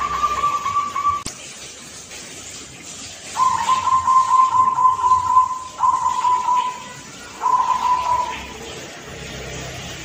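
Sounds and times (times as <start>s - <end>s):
dove cooing: 3.4s - 8.6s.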